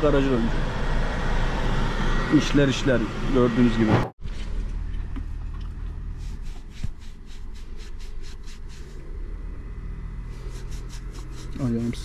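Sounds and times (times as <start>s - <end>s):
wet wipe scratching over hairy leg: 6.0s - 9.0s, 10.3s - 12.0s.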